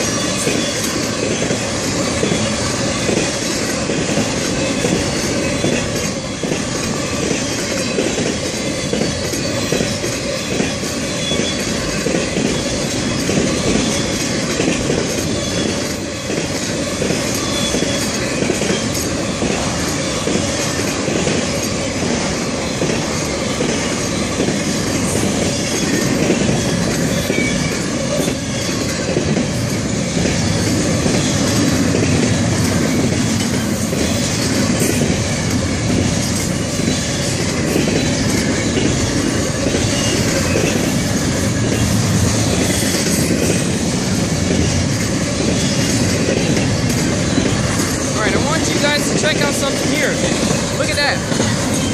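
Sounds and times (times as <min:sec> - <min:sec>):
freight train wheels rumbling on rails: 0:00.0 - 0:51.9.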